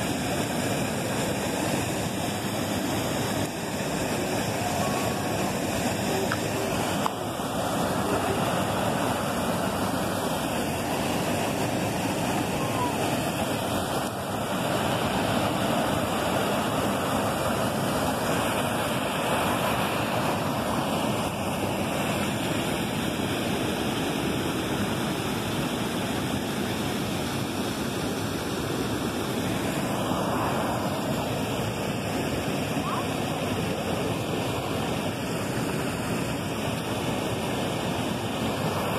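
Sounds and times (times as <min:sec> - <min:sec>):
waterfall pouring: 0:00.0 - 0:25.0.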